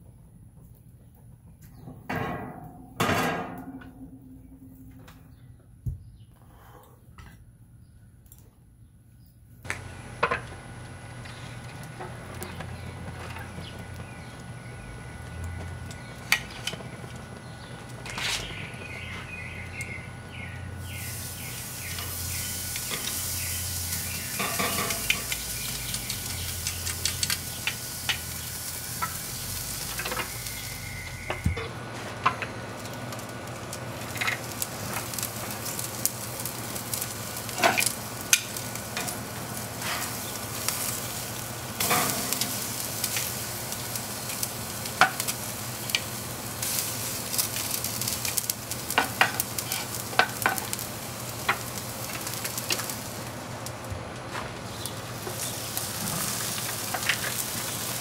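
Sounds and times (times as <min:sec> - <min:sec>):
steak sizzling: 0:09.7 - 0:31.8, 0:32.6 - 0:53.9, 0:54.6 - 0:58.0.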